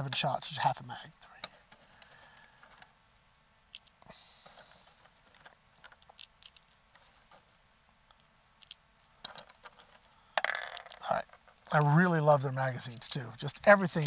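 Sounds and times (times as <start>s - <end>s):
brief hiss: 4.1s - 5.0s.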